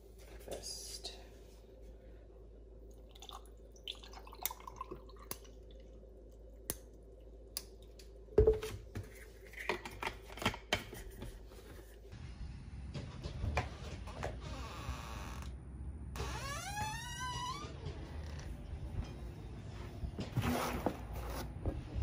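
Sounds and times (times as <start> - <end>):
juice pouring over ice: 3.1 - 5.6.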